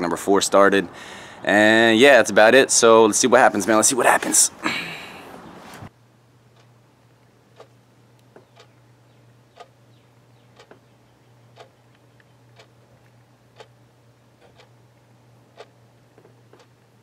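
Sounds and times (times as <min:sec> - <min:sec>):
low steady hum: 0:00.0 - 0:17.0
clock ticking: 0:06.5 - 0:06.8, 0:07.5 - 0:07.7, 0:09.5 - 0:09.7, 0:11.5 - 0:11.7, 0:12.5 - 0:12.7, 0:13.6 - 0:13.8, 0:14.4 - 0:14.8, 0:15.5 - 0:15.8, 0:16.5 - 0:16.8.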